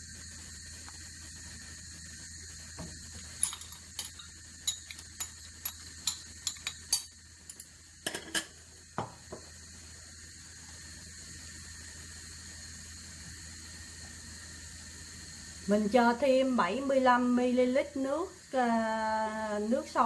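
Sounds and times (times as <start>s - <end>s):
steady hiss: 0.0s - 20.0s
utensils tapping metal pot: 3.4s - 8.5s.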